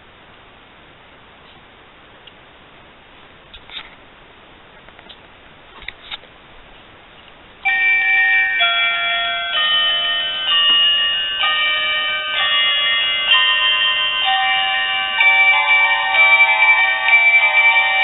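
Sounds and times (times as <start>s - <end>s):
high electronic melody: 7.7s - 18.0s.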